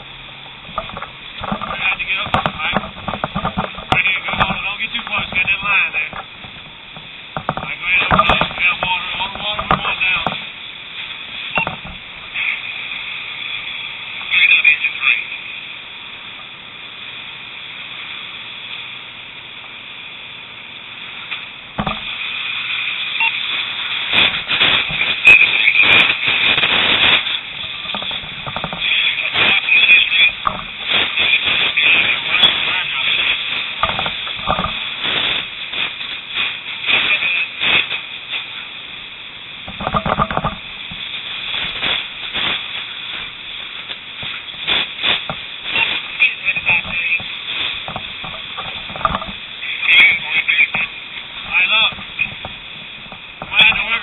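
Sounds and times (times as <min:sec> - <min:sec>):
fire hose stream hissing: 0:00.0 - 0:54.0.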